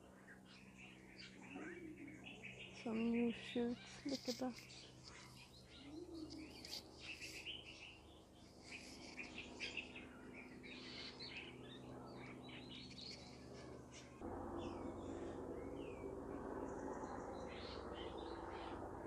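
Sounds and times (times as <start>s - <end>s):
small birds chirping: 0.0s - 19.0s
steady low rumble: 9.4s - 19.0s.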